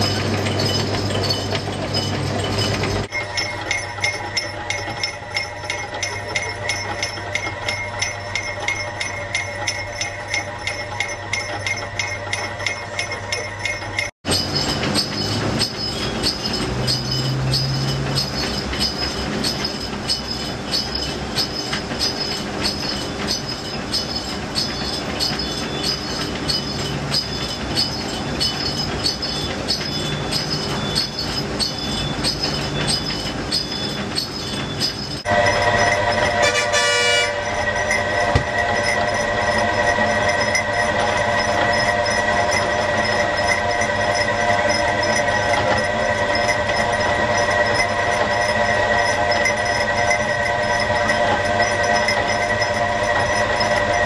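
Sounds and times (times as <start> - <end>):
bell tinkling: 0.0 - 36.4
juice machine ticking: 0.0 - 54.0.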